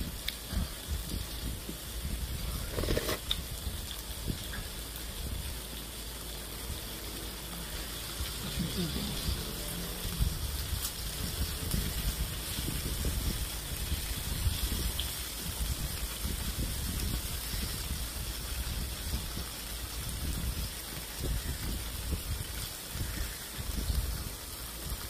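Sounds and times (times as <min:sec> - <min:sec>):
meat sizzling on a grill pan: 0:00.0 - 0:25.0.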